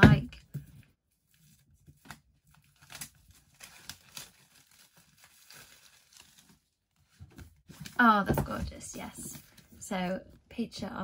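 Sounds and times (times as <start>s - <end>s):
wrapping crinkling and tearing: 1.2s - 7.2s.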